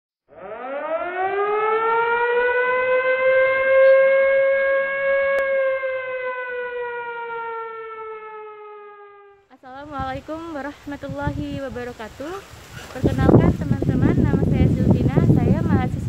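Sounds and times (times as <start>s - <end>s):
siren wailing: 0.3s - 9.5s.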